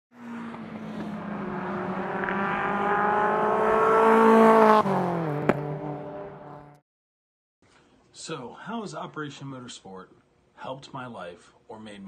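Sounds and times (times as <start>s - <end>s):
racing car engine passing by: 0.2s - 6.7s.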